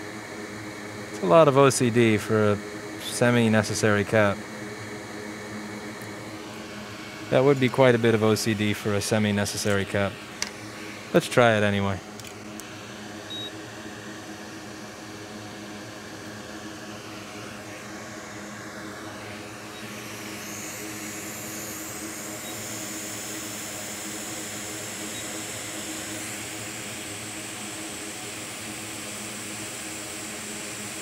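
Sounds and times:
electric blower whirring and hissing: 0.0s - 31.0s
low even hum: 1.1s - 13.5s.

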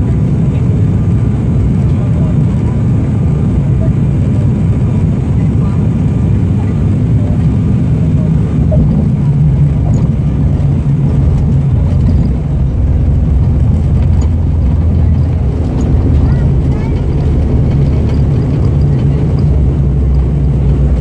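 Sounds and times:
runway rumble: 0.0s - 21.0s
turboprop engines droning: 0.0s - 21.0s.

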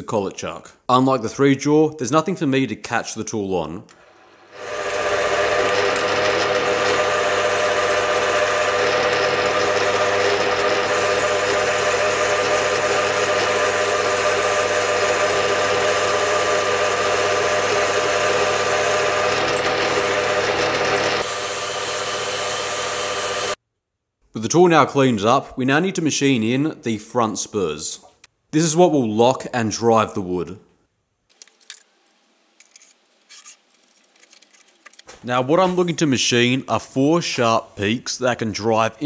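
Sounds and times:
metal lathe running with gear whine: 4.1s - 23.6s.

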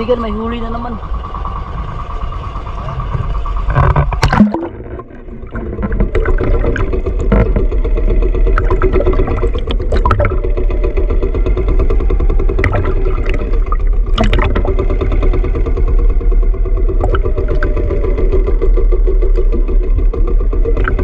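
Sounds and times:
boat engine running: 0.0s - 21.0s
short knocks or splashes: 3.8s - 7.7s, 12.6s - 14.7s.

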